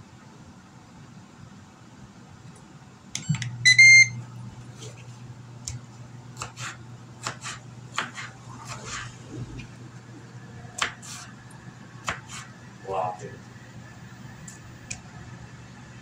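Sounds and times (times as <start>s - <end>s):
fan humming: 1.8s - 16.0s
grill beep: 3.2s - 4.2s
knife slicing tomato: 6.4s - 9.2s, 10.8s - 11.3s, 12.0s - 12.6s.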